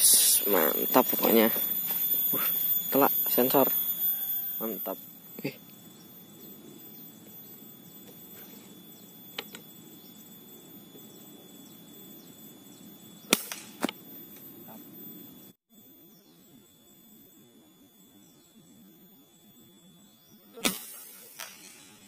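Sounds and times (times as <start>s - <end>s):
air rifle shot crack: 13.3s - 14.0s, 20.6s - 21.9s
smaller sharp crack: 13.3s - 14.0s.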